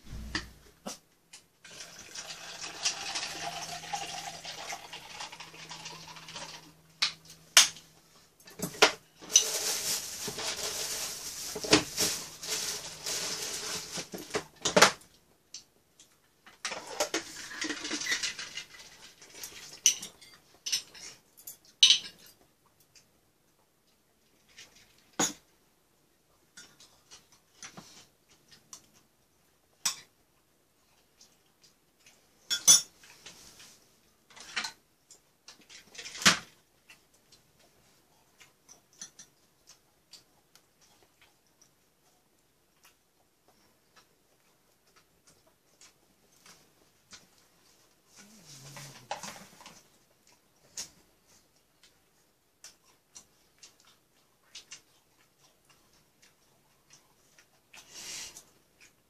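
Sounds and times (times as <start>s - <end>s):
spoons scraping against bowls: 9.2s - 13.8s.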